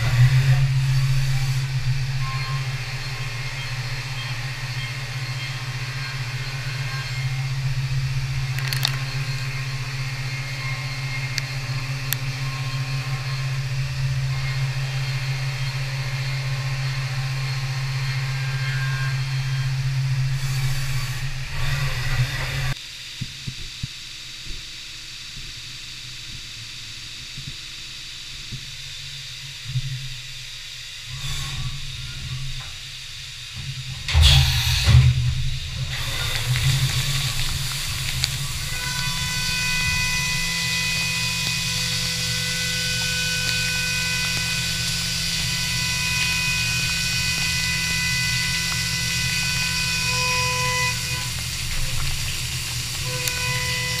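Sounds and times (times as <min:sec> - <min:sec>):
milling machine humming: 0:00.0 - 0:22.8, 0:25.9 - 0:54.0
coolant spray hissing: 0:30.5 - 0:54.0.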